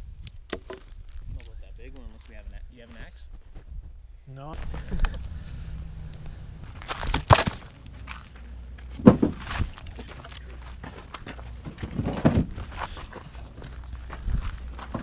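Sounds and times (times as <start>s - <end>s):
firewood thudding and crunching: 0.4s - 1.0s, 6.6s - 15.0s
footsteps on dirt and forest litter: 4.6s - 15.0s.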